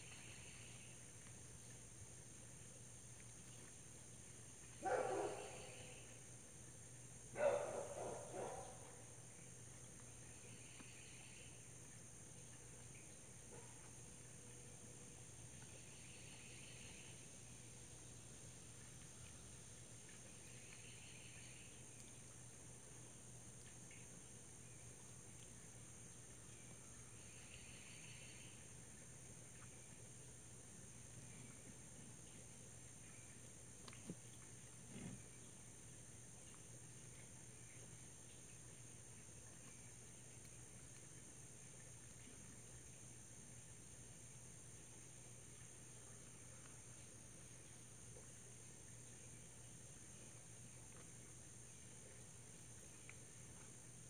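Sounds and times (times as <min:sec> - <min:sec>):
high-pitched insect chorus: 0:00.0 - 0:01.0, 0:03.6 - 0:06.4, 0:10.1 - 0:13.8, 0:14.5 - 0:18.3, 0:19.0 - 0:22.3, 0:23.5 - 0:28.8
short pulsing insect call: 0:00.0 - 0:01.1, 0:04.7 - 0:09.5, 0:10.1 - 0:22.4, 0:23.8 - 0:33.4.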